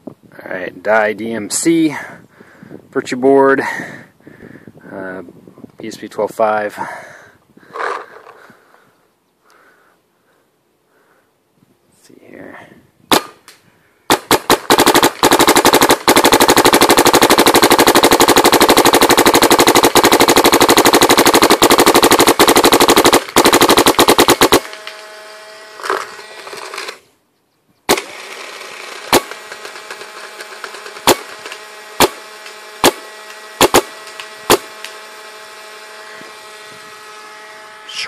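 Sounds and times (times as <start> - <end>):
paintball marker firing: 13.1 - 13.5, 14.1 - 24.9, 29.1 - 35.0.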